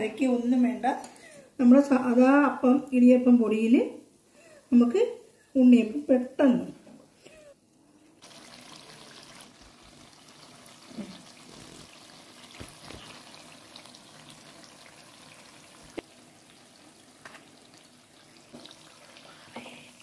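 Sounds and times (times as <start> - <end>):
batter sizzling in hot oil: 8.2 - 20.0.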